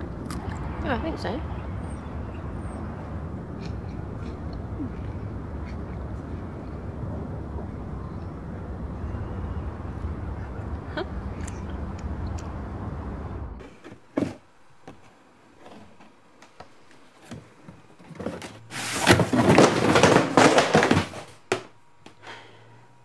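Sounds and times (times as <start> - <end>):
low outdoor rumble: 0.0 - 14.8
cardboard boxes scraping: 17.2 - 21.4.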